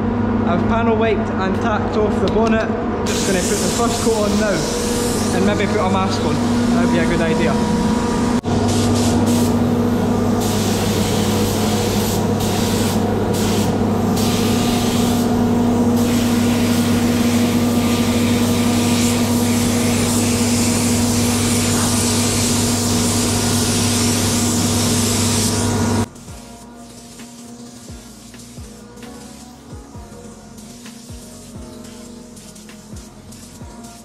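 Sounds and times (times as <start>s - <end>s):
paint spray gun hissing: 3.1s - 7.3s, 8.4s - 33.6s.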